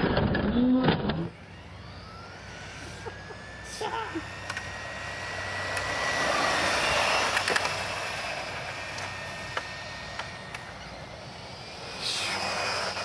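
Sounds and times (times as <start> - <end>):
rc car motor whine: 0.0 - 13.0.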